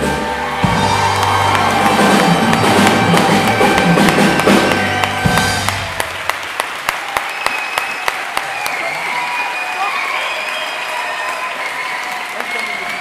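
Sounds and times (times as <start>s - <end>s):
live band holding chord: 0.0s - 6.7s
audience applause: 0.0s - 13.0s.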